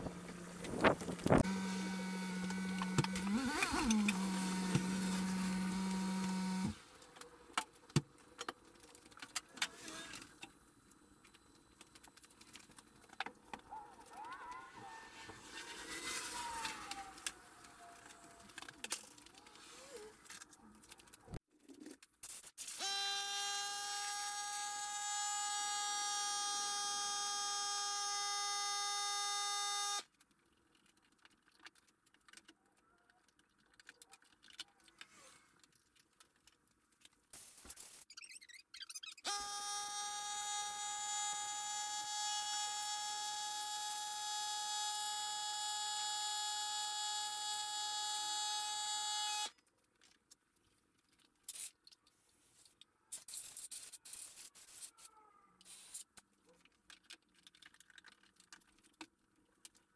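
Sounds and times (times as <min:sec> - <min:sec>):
small motor humming: 0:00.0 - 0:06.8, 0:22.8 - 0:30.0, 0:39.3 - 0:49.5
faint clicks and handling noises: 0:16.6 - 0:22.3, 0:30.1 - 0:37.8, 0:49.5 - 0:54.0, 0:54.7 - 0:59.9.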